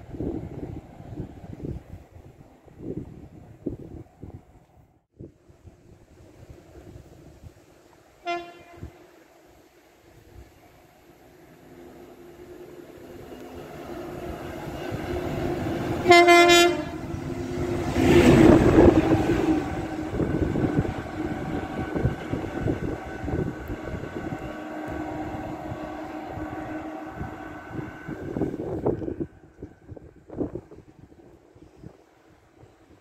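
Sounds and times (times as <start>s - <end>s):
rail maintenance machine passing: 5.8s - 31.3s
short horn blast: 8.2s - 9.0s, 16.0s - 17.1s.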